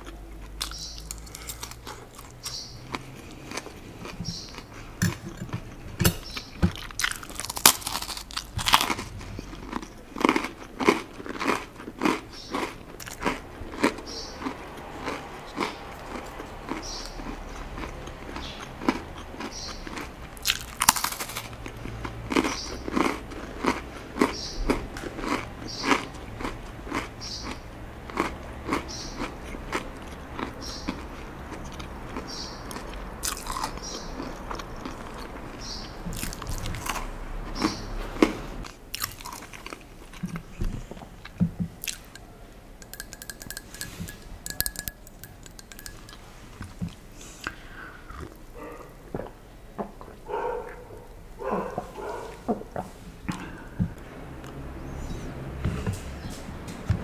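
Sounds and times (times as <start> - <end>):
crunching crisp cracker: 0.0 - 4.7, 6.2 - 40.6, 41.2 - 42.2
chewing: 0.0 - 49.4, 50.0 - 52.6.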